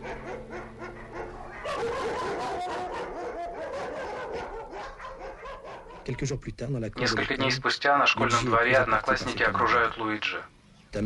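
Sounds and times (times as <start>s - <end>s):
dogs barking and yelping: 0.0s - 6.2s.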